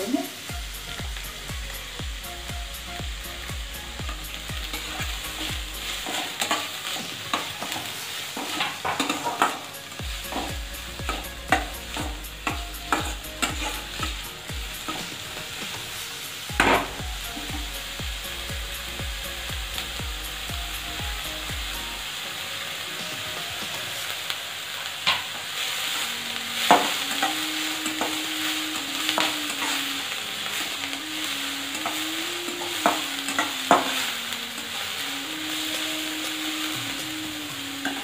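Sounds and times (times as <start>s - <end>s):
onion sizzling in hot oil: 0.0s - 38.0s
metal spatula scraping pan: 4.6s - 14.2s.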